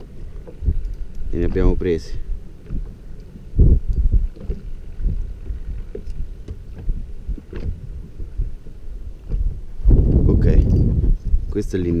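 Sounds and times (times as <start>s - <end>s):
faint small ticks: 0.0s - 1.8s, 2.6s - 9.5s
water lapping against hull: 0.0s - 11.6s
gusty wind on microphone: 0.0s - 12.0s.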